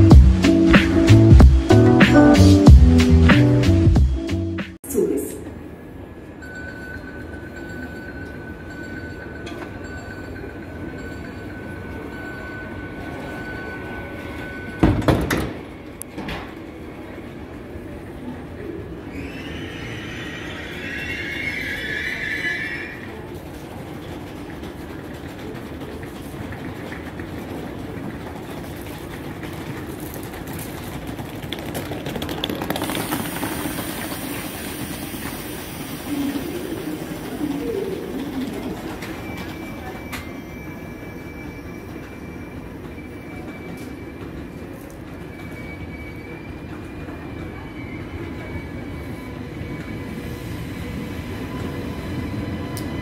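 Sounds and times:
train doors slamming shut: 14.8s - 16.6s
train equipment humming: 32.3s - 53.0s
hiss: 32.8s - 37.2s.

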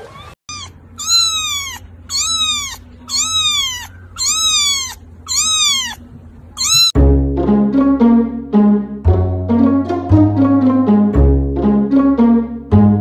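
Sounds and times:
kitten mewing: 0.5s - 7.0s.

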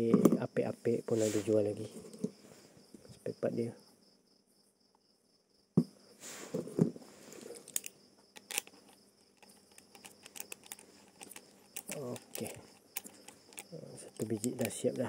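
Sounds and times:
cricket chirping: 0.0s - 15.0s
fishing reel parts clicking: 7.6s - 15.0s.

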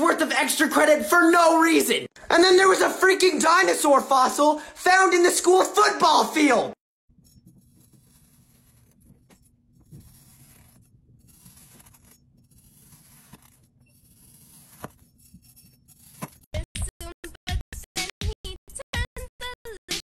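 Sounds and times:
knife slicing through sand: 7.7s - 16.4s.

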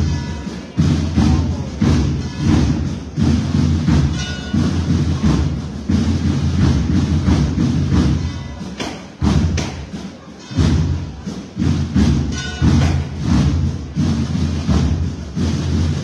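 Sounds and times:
procession band music: 0.0s - 9.5s
heavy drum beats: 0.0s - 16.0s.

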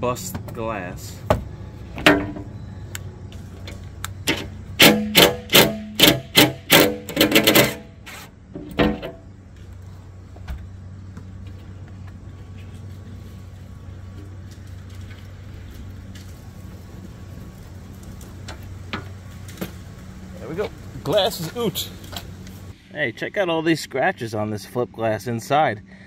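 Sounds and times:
impact driver bursts: 4.8s - 7.8s.

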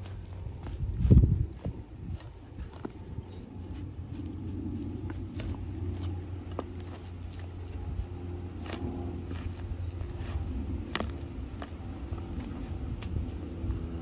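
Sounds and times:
steady low rumble: 0.0s - 14.0s
steel bar crunching in soil: 0.0s - 14.0s.

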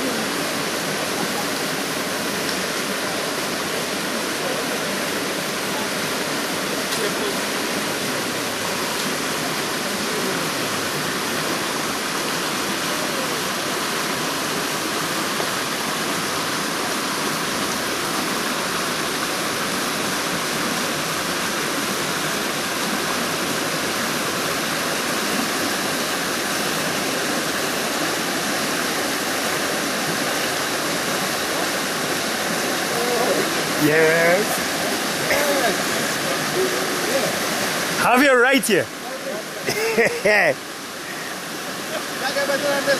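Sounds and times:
water cascading over rocks: 0.0s - 42.9s.

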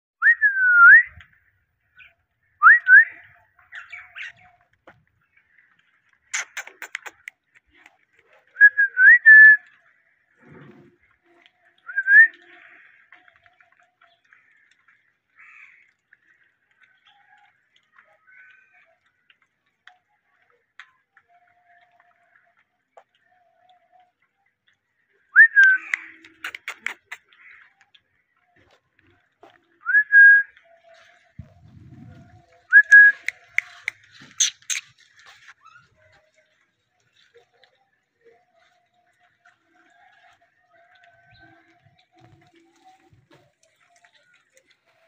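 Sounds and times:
faint clicks: 4.3s - 8.6s, 25.6s - 29.8s
parakeet high chirps: 33.7s - 35.0s.

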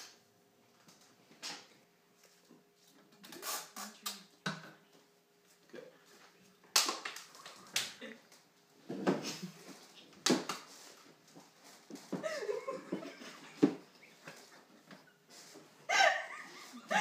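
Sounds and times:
muffled laughter: 12.1s - 15.0s, 15.9s - 17.0s.

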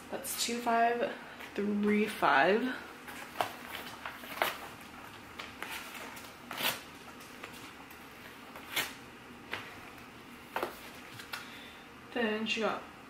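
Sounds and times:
paper sheets rustling: 3.1s - 9.8s.

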